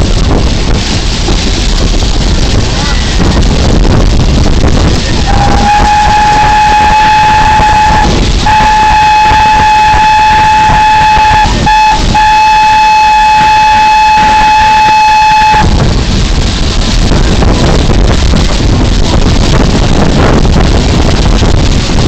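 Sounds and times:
wind rumble on microphone: 0.0 - 22.0
steam locomotive whistle: 5.2 - 15.8.

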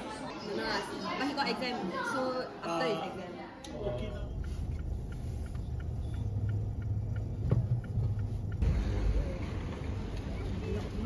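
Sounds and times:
steady low rumble: 3.9 - 11.0.

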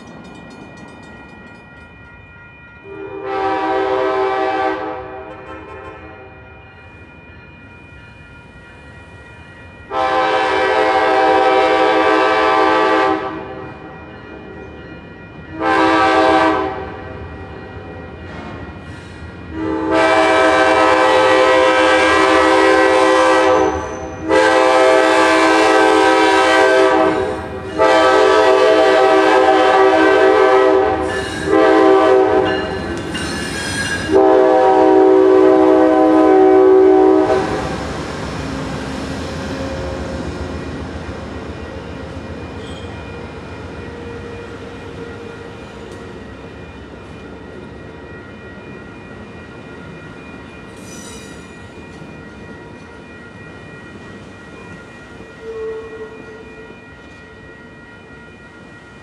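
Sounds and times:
train passing: 0.0 - 59.0
locomotive air horn blasts: 2.9 - 6.2, 9.9 - 13.6, 15.5 - 17.0, 19.5 - 32.5, 34.1 - 37.7.

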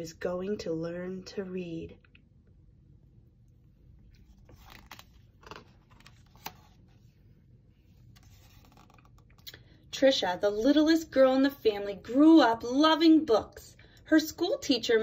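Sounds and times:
paper page turning: 4.1 - 7.2, 8.0 - 9.4.

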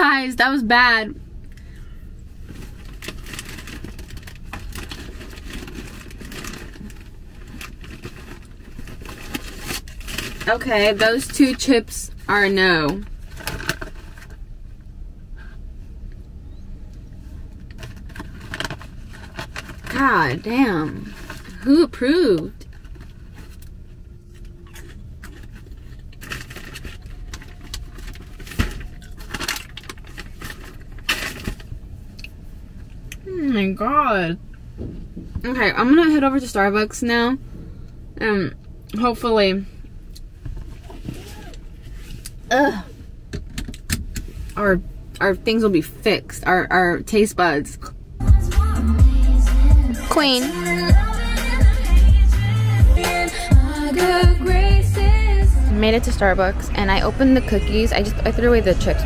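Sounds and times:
low rumble inside car: 0.0 - 59.0
snack packaging crinkling: 2.6 - 11.3, 24.3 - 31.7.

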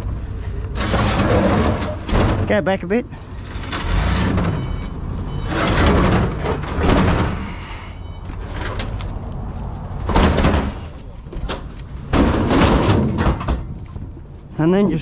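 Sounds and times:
metal cabinet scraping against steel cage: 0.8 - 2.6, 3.4 - 8.9.

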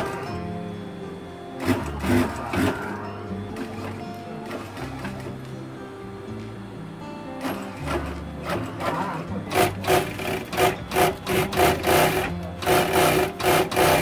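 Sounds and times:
guitar music: 0.0 - 14.0
sewing machine stitching: 1.6 - 2.9, 3.6 - 5.3, 7.4 - 14.0.

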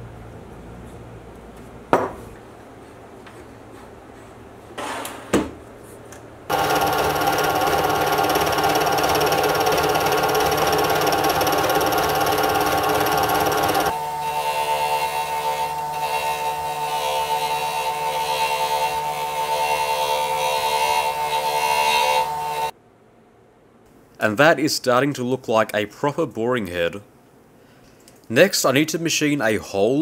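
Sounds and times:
metal lathe whining: 6.5 - 22.7.

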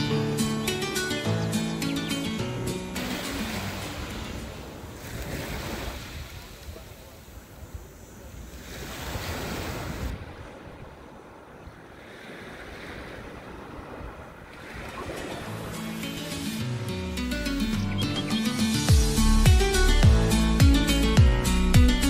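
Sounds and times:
waves washing up pebble shore: 3.0 - 10.6
wind buffeting microphone: 4.1 - 15.7.

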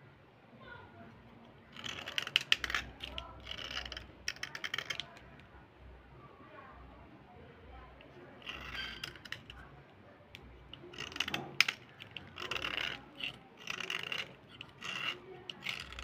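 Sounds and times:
blade scraping slate pencil: 1.7 - 5.2, 8.0 - 9.7, 10.3 - 16.0.

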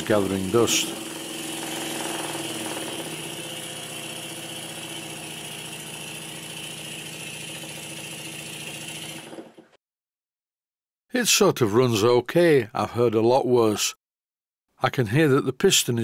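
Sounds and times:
model steam engine running: 0.0 - 9.6.

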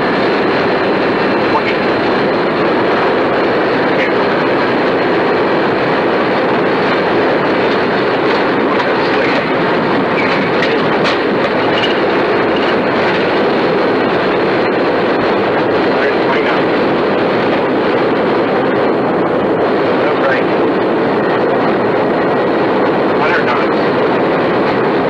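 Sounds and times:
aircraft engine and airflow noise: 0.0 - 25.0.

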